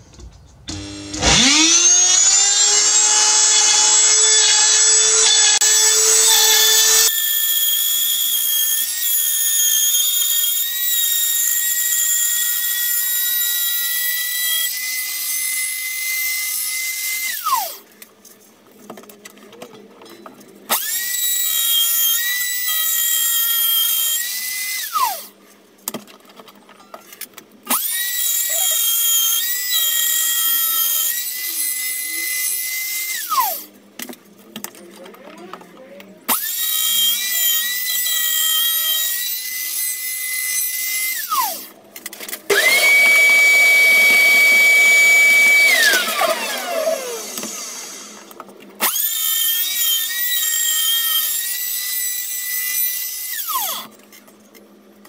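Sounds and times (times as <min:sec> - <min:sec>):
electric power tool whine: 0:00.7 - 0:17.9, 0:20.7 - 0:25.4, 0:27.7 - 0:33.7, 0:36.3 - 0:54.2.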